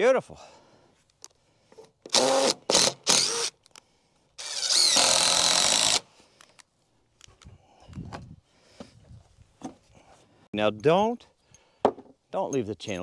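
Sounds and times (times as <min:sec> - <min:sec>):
power drill whirring: 0:02.0 - 0:03.6, 0:04.4 - 0:06.1.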